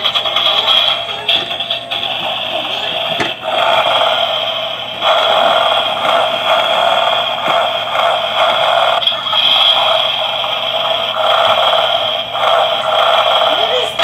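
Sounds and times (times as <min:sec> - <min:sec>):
toy electronic sound effects: 0:08.6 - 0:14.0.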